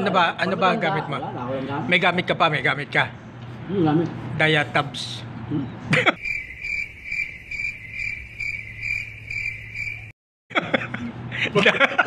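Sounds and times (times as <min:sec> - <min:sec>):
cricket chirping: 0:06.2 - 0:10.2.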